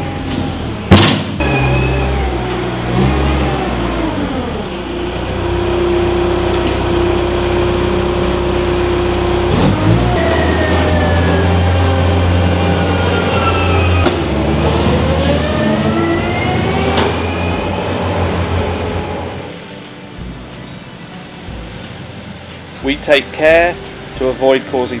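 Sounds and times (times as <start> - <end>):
loader diesel engine running: 0.0 - 24.6
high whine falling in pitch: 4.5 - 19.3.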